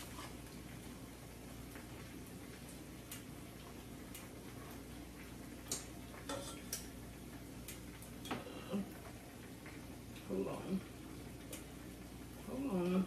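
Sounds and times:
kitchen tongs tapping a pot: 5.7 - 7.0.

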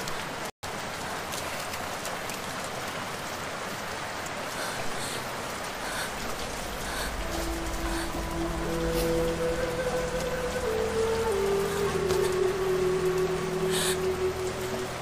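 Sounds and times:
rain falling: 0.0 - 15.0
low held music notes: 6.1 - 15.0.

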